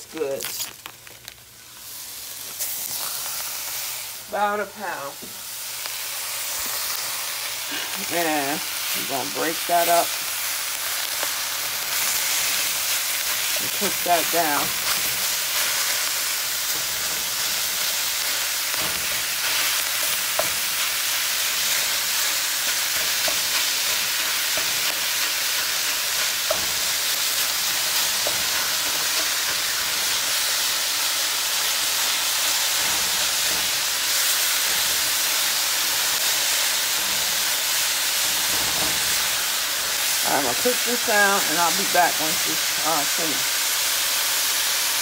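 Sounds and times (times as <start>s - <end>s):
meat sizzling in a pot: 0.0s - 45.0s.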